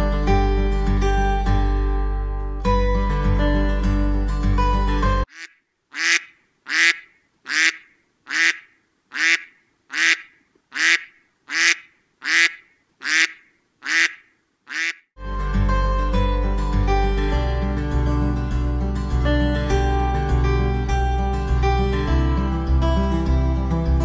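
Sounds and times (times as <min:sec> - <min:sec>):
plucked guitar music: 0:00.0 - 0:05.2, 0:15.2 - 0:24.0
short bird calls: 0:05.3 - 0:15.1.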